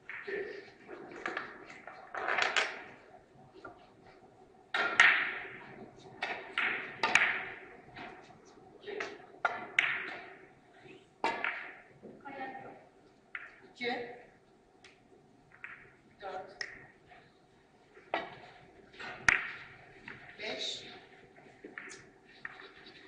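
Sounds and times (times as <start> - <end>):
billiard balls clacking: 0.0 - 12.2, 14.8 - 20.4, 21.0 - 23.0
cue striking ball: 4.8 - 5.6, 6.2 - 8.2.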